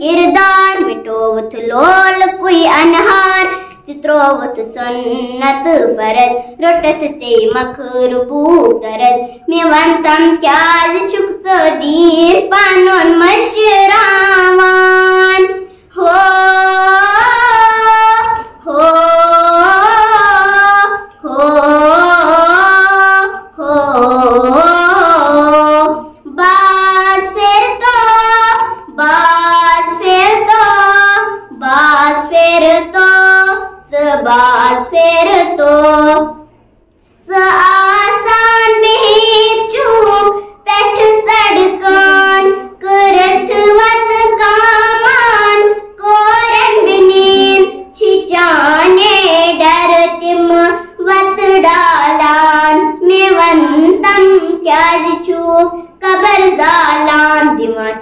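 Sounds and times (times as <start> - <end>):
girl singing unaccompanied: 0.0 - 36.6, 37.2 - 58.0.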